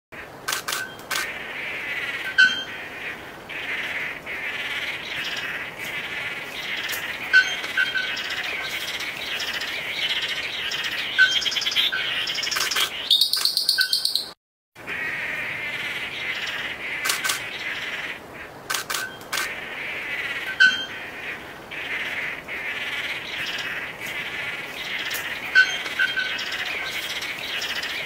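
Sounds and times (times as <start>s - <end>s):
birds chattering calls: 0.2s - 28.0s
bird sharp clicks: 0.5s - 1.3s, 12.4s - 14.4s, 17.0s - 17.5s, 18.7s - 19.5s
bird fast pulsing trill: 10.7s - 14.4s.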